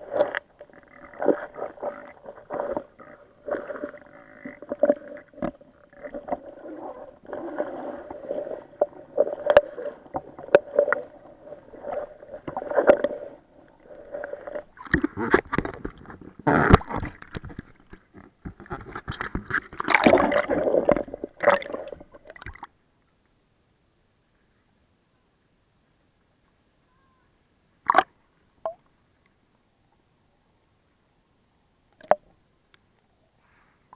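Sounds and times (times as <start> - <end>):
water splashing: 0.0 - 18.0, 18.6 - 22.7
steady underwater hum: 0.0 - 33.9
water sloshing against camera housing: 14.4 - 22.1.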